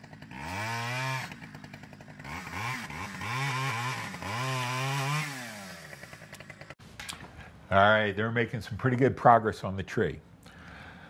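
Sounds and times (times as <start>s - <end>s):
chainsaw revving: 0.0s - 6.8s.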